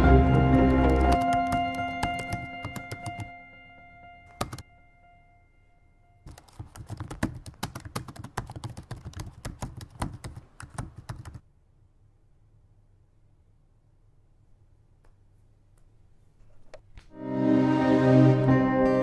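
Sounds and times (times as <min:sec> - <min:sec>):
laptop keyboard typing: 0:00.5 - 0:03.3, 0:04.3 - 0:04.6, 0:06.3 - 0:11.4.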